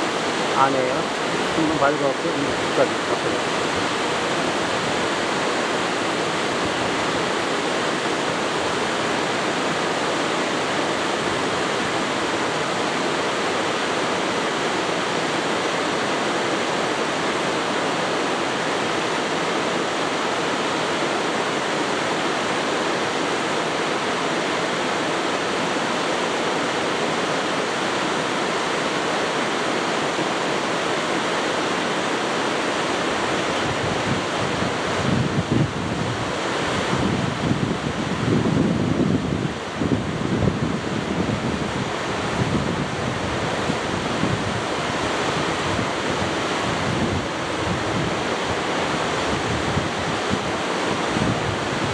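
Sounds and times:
waterfall rushing: 0:00.0 - 0:51.9
wind buffeting microphone: 0:33.1 - 0:51.9.

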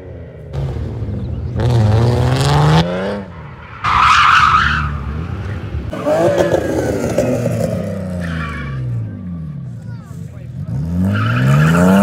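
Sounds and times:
car engine revving: 0:00.0 - 0:09.8, 0:10.4 - 0:12.0
tyre squeal: 0:05.9 - 0:09.0.

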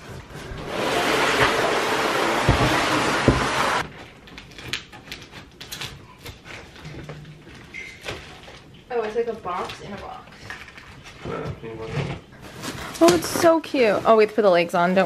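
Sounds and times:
cardboard box scraping on floor: 0:00.0 - 0:03.8.

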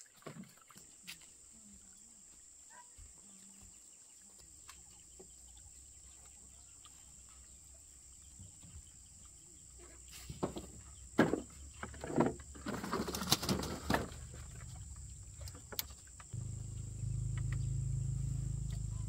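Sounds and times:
high insect drone: 0:13.2 - 0:19.0
birds chirping: 0:14.2 - 0:19.0.

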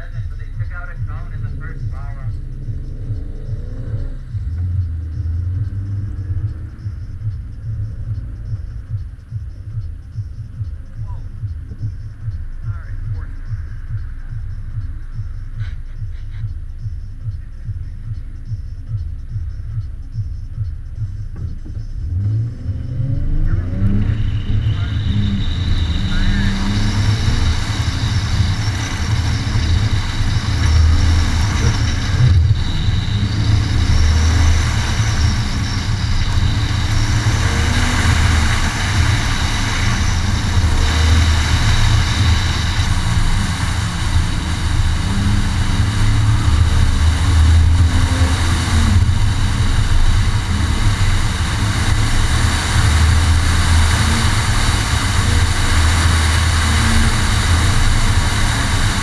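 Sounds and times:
car engine running hard: 0:00.0 - 0:59.0.

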